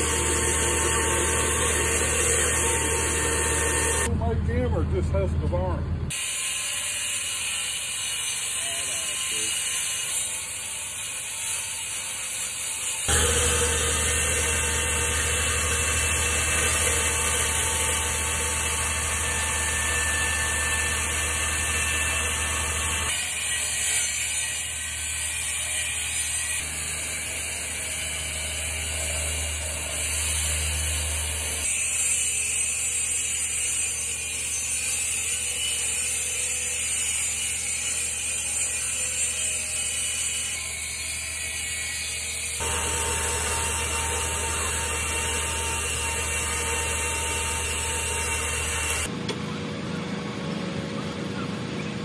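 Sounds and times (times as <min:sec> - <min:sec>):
cut-off saw cutting concrete: 0:00.0 - 0:04.1, 0:06.1 - 0:49.1
lower steady running noise: 0:13.1 - 0:23.1, 0:42.6 - 0:52.0.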